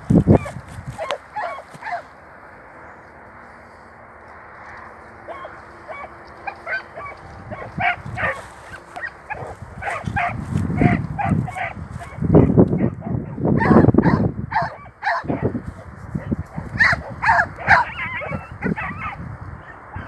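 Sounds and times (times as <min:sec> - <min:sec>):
animal yelping calls: 0:00.3 - 0:02.1, 0:05.3 - 0:15.5, 0:16.2 - 0:20.0
low rumbling on microphone: 0:07.1 - 0:20.0.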